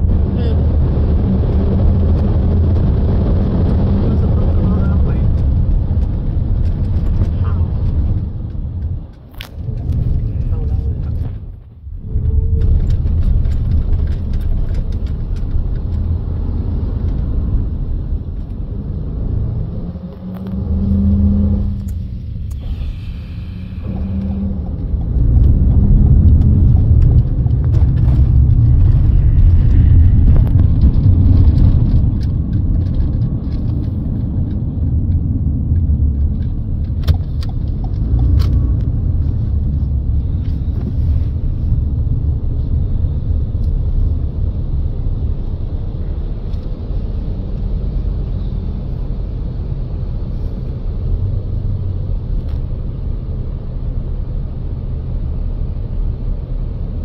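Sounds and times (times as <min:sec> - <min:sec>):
car cabin road and engine rumble: 0:00.0 - 0:57.0.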